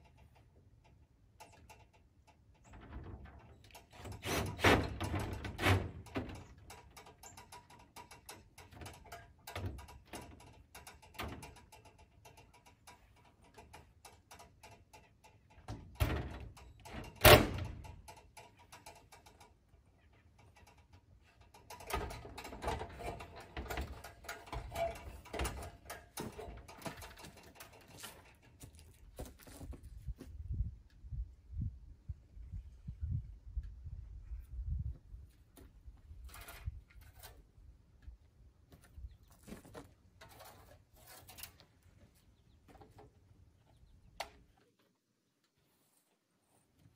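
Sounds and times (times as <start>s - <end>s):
ladder clicks and knocks: 0.0s - 19.6s, 20.4s - 28.9s
ladder clatter and steps: 0.0s - 19.7s, 20.4s - 30.3s.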